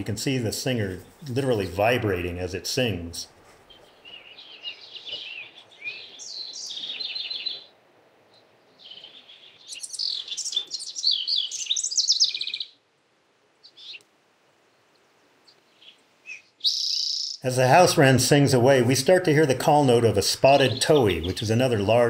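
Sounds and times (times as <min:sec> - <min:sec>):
wren singing: 0:03.7 - 0:07.7, 0:08.3 - 0:12.8, 0:13.6 - 0:14.0, 0:15.4 - 0:18.6, 0:19.2 - 0:22.0.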